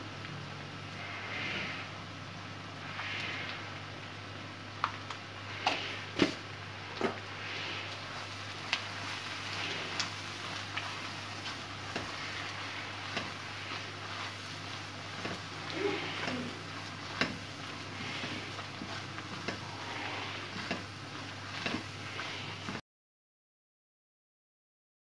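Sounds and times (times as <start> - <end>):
oil sizzling in a wok: 0.0 - 22.8
spatula scraping and tapping pan: 8.1 - 22.8.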